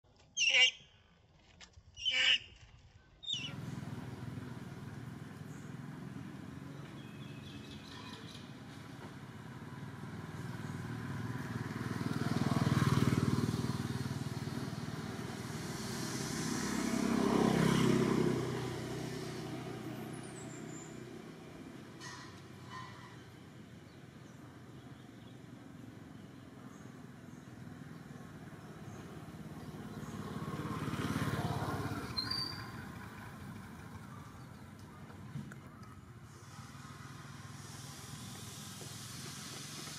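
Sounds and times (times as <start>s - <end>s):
monkey screeching: 0.4s - 0.8s
motor vehicles passing: 3.2s - 39.9s.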